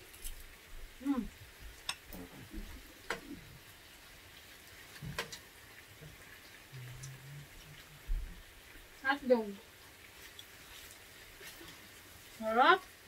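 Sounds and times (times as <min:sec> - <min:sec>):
meat sizzling on a grill: 0:00.0 - 0:13.0
chopsticks clicking against bowls: 0:01.8 - 0:02.2.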